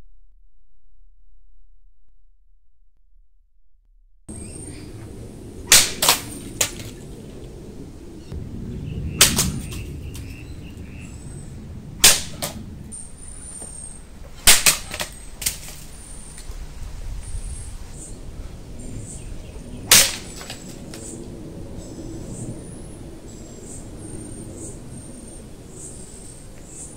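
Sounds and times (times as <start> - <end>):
sword cutting bamboo cracks: 5.7 - 7.0, 9.2 - 10.3, 12.0 - 12.6, 14.4 - 15.9, 19.9 - 21.1.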